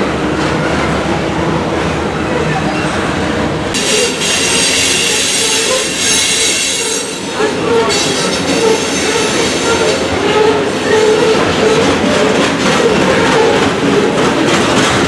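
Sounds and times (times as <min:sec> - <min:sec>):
rail cars rumbling past: 0:00.0 - 0:15.0
high-pitched wheel squeal: 0:03.8 - 0:11.8.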